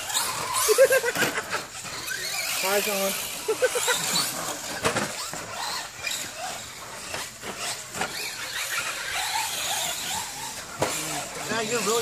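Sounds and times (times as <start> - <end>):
high-pitched motor whine: 0.0 - 12.0
trucks clattering on track: 0.0 - 12.0
tyres on dirt: 0.0 - 12.0.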